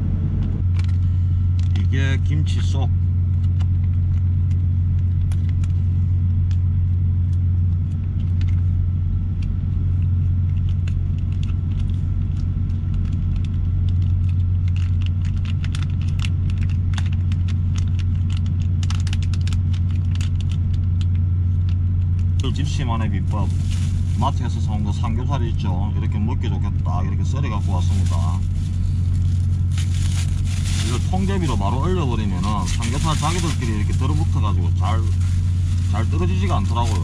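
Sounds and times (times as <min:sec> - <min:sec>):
food packaging crinkling: 0:10.1 - 0:25.0, 0:27.4 - 0:37.0
truck diesel engine idling: 0:20.7 - 0:37.0.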